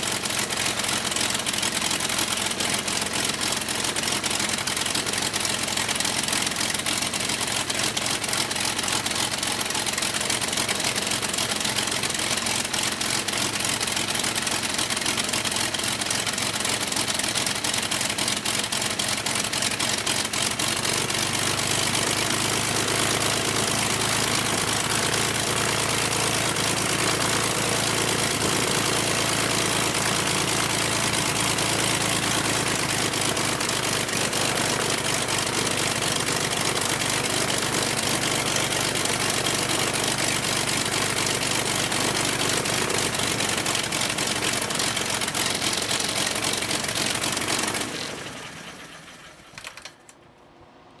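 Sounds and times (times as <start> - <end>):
propeller winding down: 0.0 - 50.8
aircraft engine running: 22.3 - 38.6, 41.9 - 49.9.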